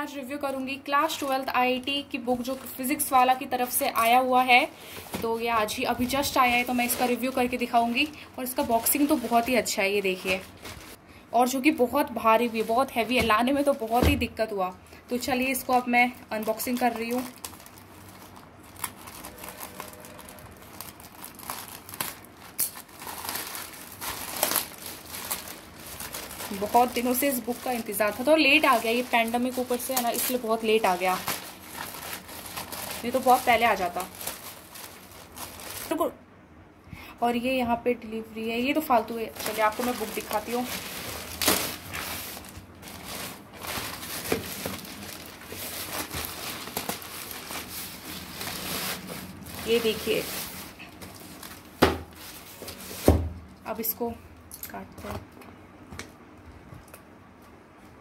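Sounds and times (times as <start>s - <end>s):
plastic mailer bag crinkling: 2.4s - 11.0s, 11.6s - 14.2s, 15.1s - 36.0s, 38.6s - 53.1s
scissors cutting plastic: 22.0s - 23.2s.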